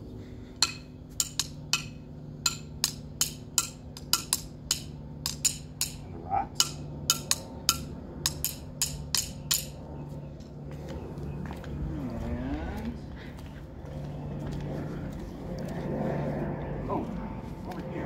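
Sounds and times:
drumsticks tapping on rock: 0.6s - 6.0s, 6.6s - 9.8s.

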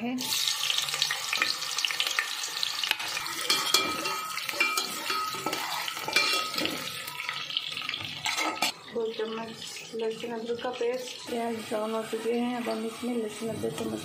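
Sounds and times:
onions sizzling in hot oil: 0.1s - 14.0s
spatula scraping metal pot: 3.4s - 6.9s.

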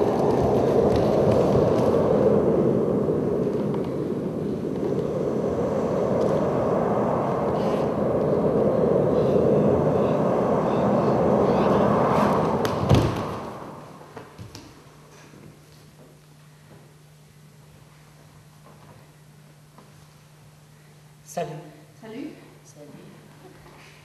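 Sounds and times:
loud rushing noise: 0.0s - 14.4s
heavy thump: 12.6s - 13.6s.

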